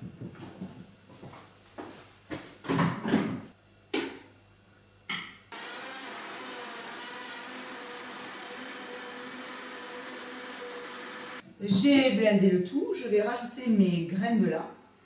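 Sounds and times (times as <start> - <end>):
blender motor running: 5.5 - 11.4.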